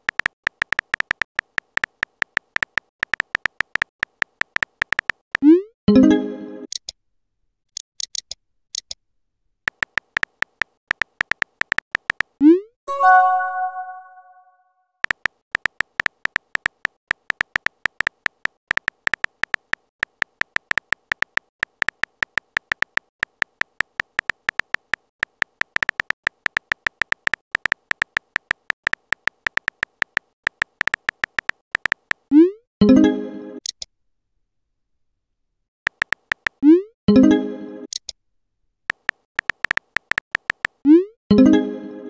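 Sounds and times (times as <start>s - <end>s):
electronic message chime: 12.9s - 14.5s
keyboard tap clicks: 15.0s - 32.2s, 35.9s - 36.6s, 38.9s - 40.8s.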